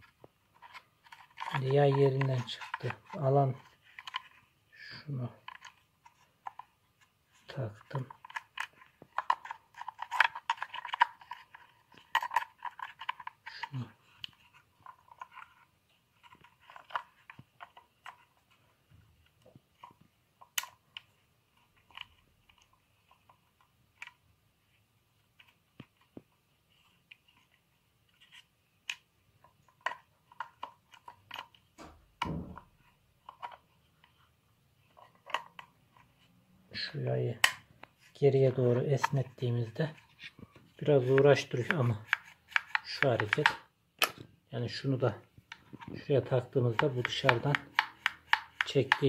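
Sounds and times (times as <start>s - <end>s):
plastic and metal parts clicking: 0.0s - 4.4s, 5.4s - 6.7s, 7.5s - 18.5s, 28.2s - 34.2s, 34.9s - 36.2s, 38.7s - 44.3s, 45.4s - 49.0s.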